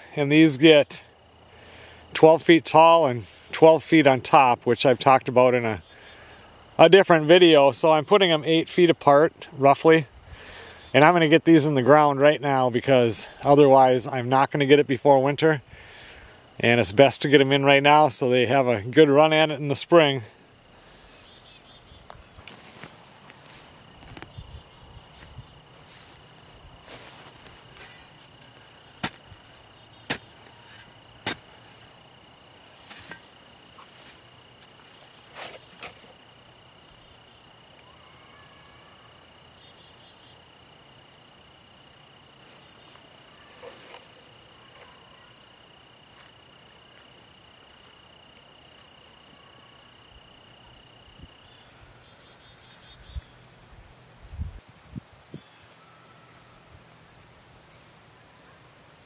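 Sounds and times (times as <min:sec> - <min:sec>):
continuous high whine: 0:00.0 - 0:59.0
crickets chirping: 0:00.0 - 0:59.0
shovel striking the ground: 0:29.0 - 0:29.2, 0:30.1 - 0:31.5, 0:32.8 - 0:33.3.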